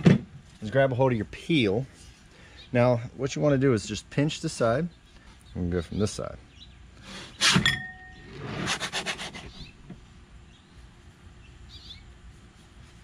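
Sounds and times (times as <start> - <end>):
bird chirping: 4.8 - 8.4, 9.4 - 12.2
peel scraping under dough: 8.4 - 9.6.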